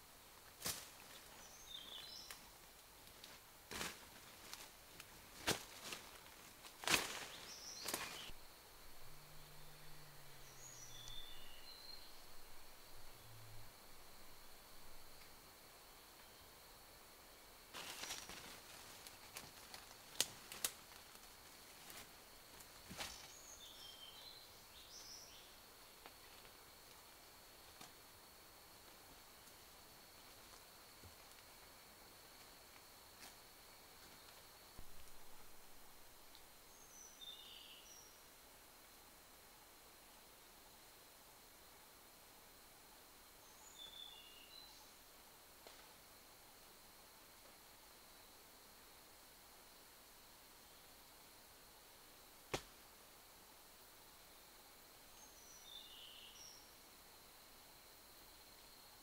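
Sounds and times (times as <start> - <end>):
high insect drone: 0.0 - 59.0
bird chirps: 10.3 - 12.4
footsteps through leaf litter: 17.8 - 19.6.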